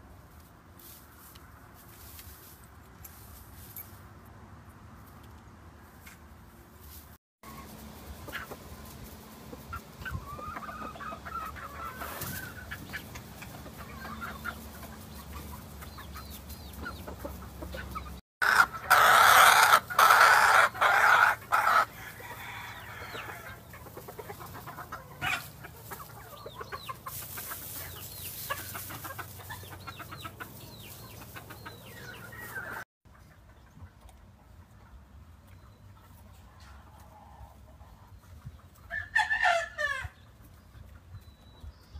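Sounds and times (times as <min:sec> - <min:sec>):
chickens clucking softly: 0:07.4 - 0:41.9
rooster crowing: 0:21.8 - 0:23.5.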